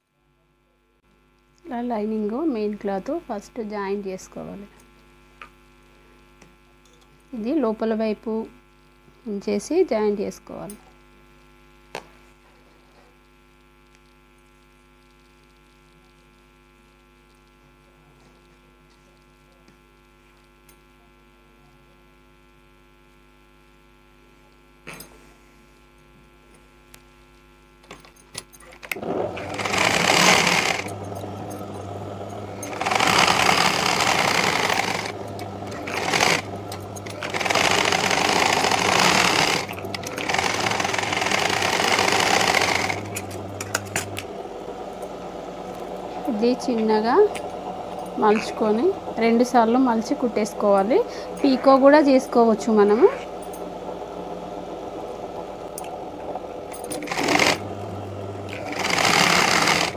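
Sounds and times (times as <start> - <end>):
low mains hum: 0.0 - 59.9
sewing machine stitching: 28.6 - 59.9.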